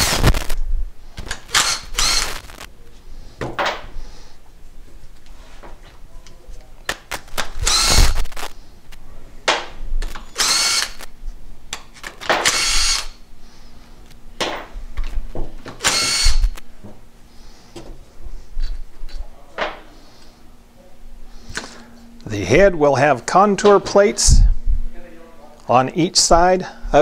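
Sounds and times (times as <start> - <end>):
cordless drill whirring: 1.3 - 2.7, 7.4 - 8.5, 10.2 - 11.1, 12.4 - 13.2, 15.8 - 16.6.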